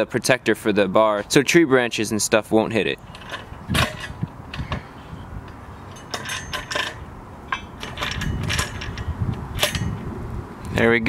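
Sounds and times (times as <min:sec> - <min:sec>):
metal brackets clinking on steel: 0:02.8 - 0:04.9, 0:05.5 - 0:10.0.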